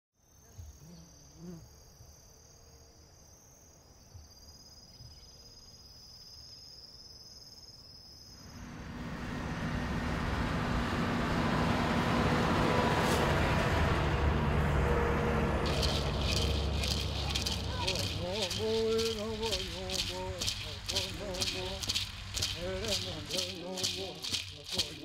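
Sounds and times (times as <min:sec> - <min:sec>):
insects trilling: 0:00.2 - 0:08.7, 0:15.6 - 0:25.0
heavy truck: 0:08.6 - 0:18.6.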